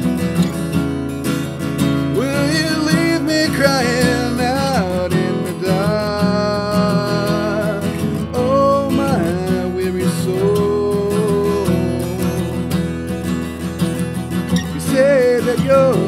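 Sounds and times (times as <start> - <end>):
acoustic guitar strumming: 0.0 - 16.0
wordless singing: 2.1 - 13.1, 14.6 - 16.0.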